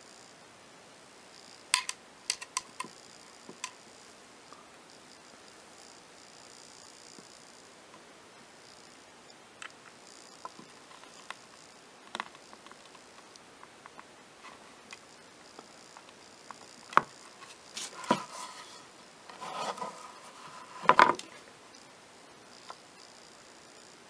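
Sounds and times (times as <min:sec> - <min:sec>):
small metal clicks and taps: 0:01.7 - 0:03.8.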